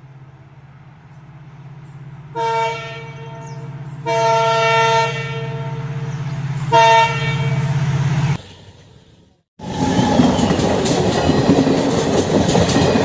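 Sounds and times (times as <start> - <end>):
locomotive air horn blasts: 2.3 - 6.0, 6.6 - 7.9.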